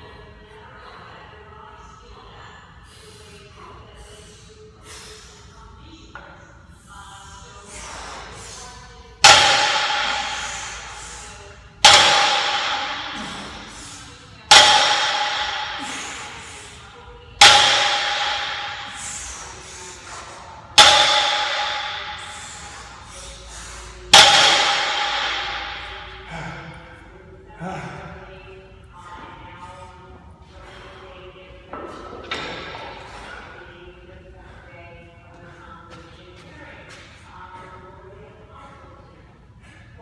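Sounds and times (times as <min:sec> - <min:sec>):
barbell clanging on gym floor: 0:14.5 - 0:16.2, 0:17.4 - 0:19.1, 0:20.8 - 0:22.6.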